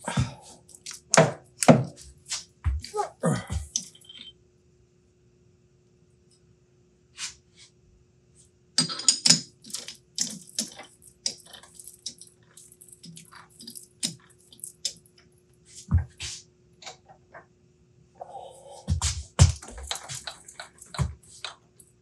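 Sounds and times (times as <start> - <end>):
metal tools clinking on lathe chuck: 8.8 - 15.0.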